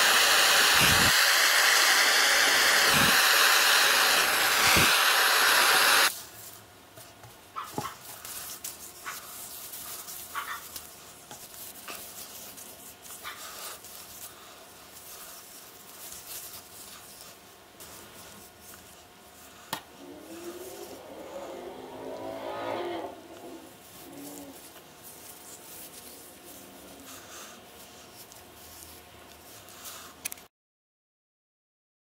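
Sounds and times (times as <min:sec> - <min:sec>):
gloved hands rubbing wood: 0:07.8 - 0:30.1
squeaky whine: 0:20.0 - 0:24.5.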